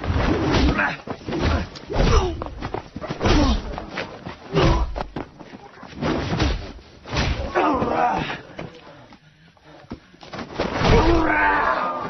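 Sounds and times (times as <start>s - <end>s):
men grunting and shouting: 7.4s - 9.1s.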